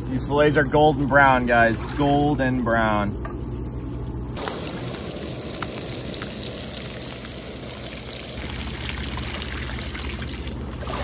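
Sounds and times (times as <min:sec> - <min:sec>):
fish sizzling in oil: 0:04.4 - 0:10.8
water pouring and splashing: 0:04.4 - 0:11.0.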